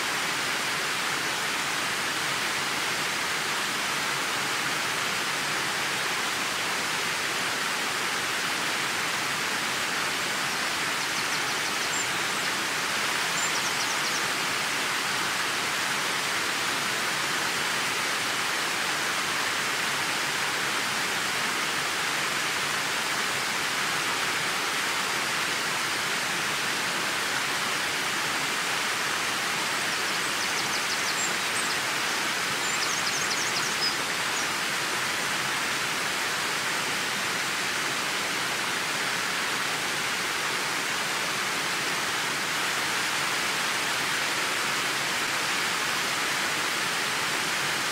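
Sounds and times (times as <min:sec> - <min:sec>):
waterfall rushing: 0:00.0 - 0:47.9.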